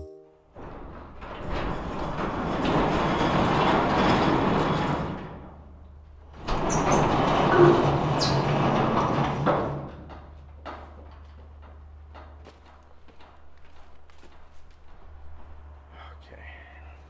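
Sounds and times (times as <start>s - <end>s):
sliding barn door rolling: 0.6s - 15.9s.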